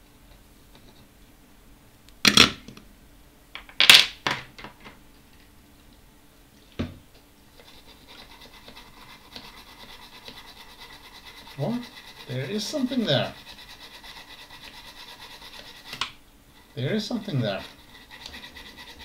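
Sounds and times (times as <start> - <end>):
faint rubbing: 7.6 - 19.0.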